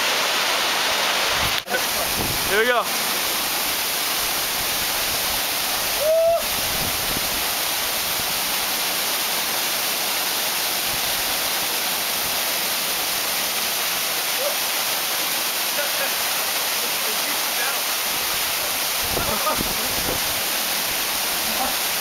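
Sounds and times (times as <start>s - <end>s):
waterfall pouring onto rocks: 0.0s - 22.0s
person crying out: 5.9s - 6.6s.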